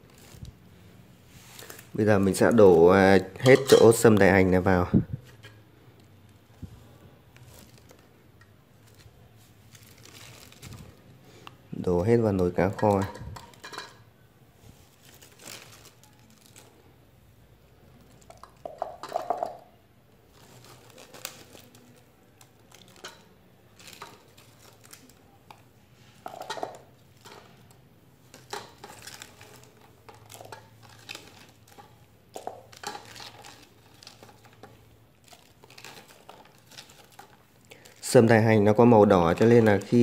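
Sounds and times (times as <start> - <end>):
bulbs rustling and clattering into pot: 1.4 - 4.4, 12.0 - 14.1, 18.0 - 40.0.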